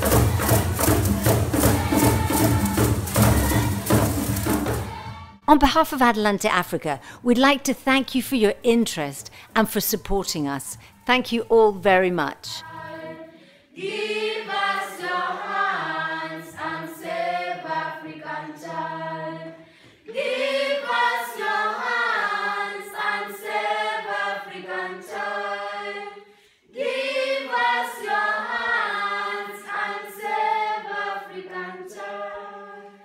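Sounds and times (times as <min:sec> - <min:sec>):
choir singing a cappella: 0:00.0 - 0:05.4, 0:12.5 - 0:33.0.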